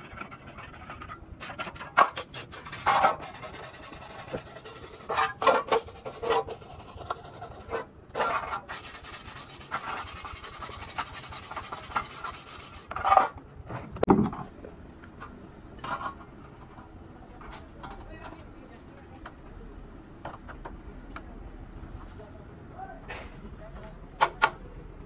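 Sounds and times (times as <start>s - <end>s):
wire brush scrubbing metal: 0.0s - 13.2s.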